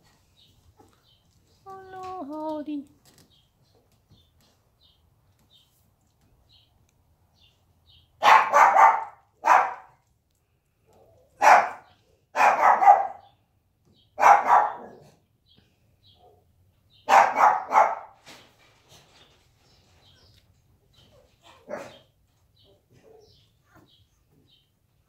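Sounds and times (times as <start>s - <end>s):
dog barking: 8.2s - 10.0s, 10.9s - 13.3s, 14.2s - 15.2s, 17.0s - 18.2s, 21.5s - 22.1s.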